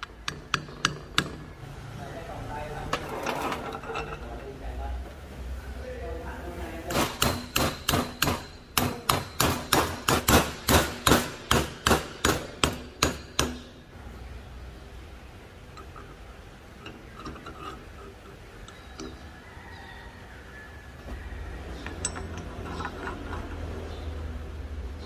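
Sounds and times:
metal parts clinking: 2.9s - 4.4s, 15.7s - 19.3s, 21.7s - 24.0s
hammer tapping steel: 6.9s - 13.8s.

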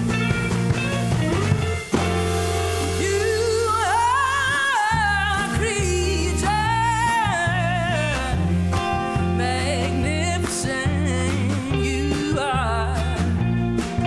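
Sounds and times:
bass guitar: 0.0s - 14.0s
drums: 0.0s - 14.0s
person singing with vibrato: 2.7s - 13.6s.

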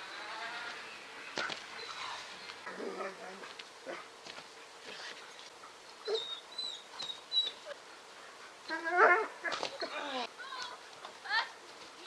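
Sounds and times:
whining vocal cries: 8.6s - 10.7s.

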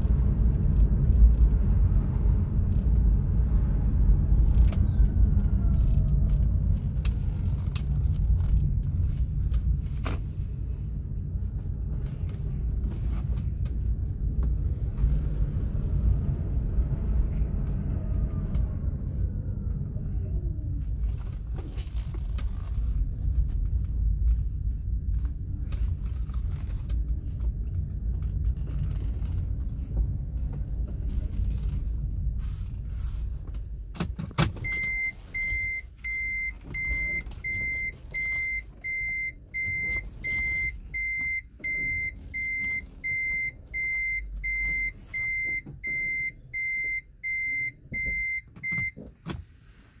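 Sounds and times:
car rumbling from inside cabin: 0.0s - 50.0s
car warning beeper: 34.6s - 49.0s.

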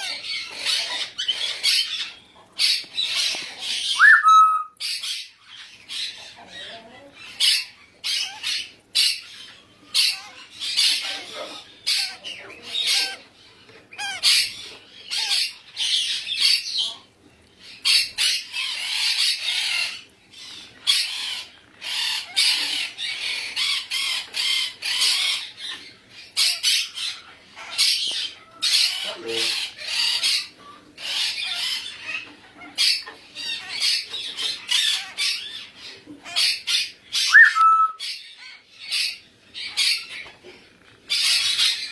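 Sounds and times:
parrots squawking: 0.0s - 41.9s
parrot whistle: 4.0s - 4.8s, 37.2s - 38.0s.

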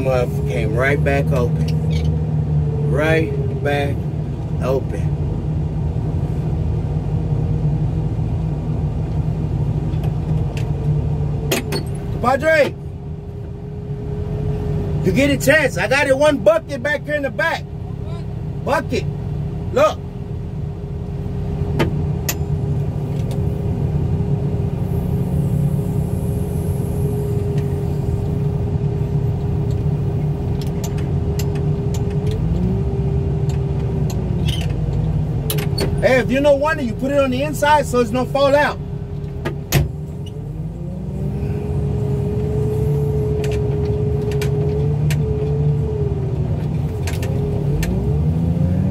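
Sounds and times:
truck engine running: 0.0s - 48.9s.

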